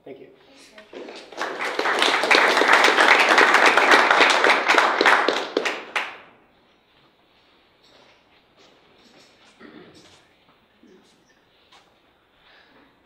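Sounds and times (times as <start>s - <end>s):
audience applauding: 0.8s - 6.3s.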